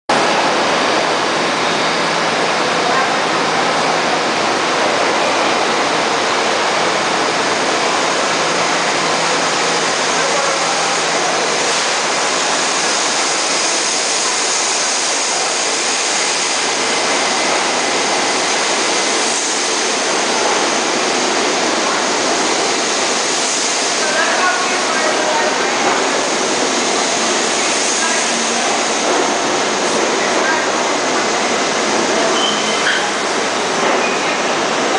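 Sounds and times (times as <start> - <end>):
train wheels rushing on rail: 0.1 - 34.9
faint high wheel squeal: 32.3 - 33.1.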